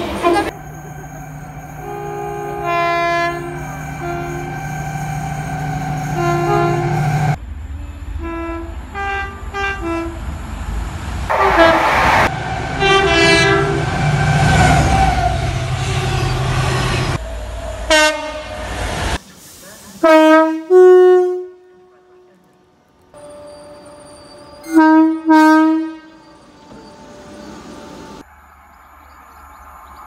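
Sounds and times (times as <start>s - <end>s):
two-tone train horn: 0.0s - 10.2s, 11.3s - 16.4s, 17.8s - 18.6s, 20.0s - 22.5s, 24.4s - 26.9s
passing train rumble: 0.0s - 30.0s.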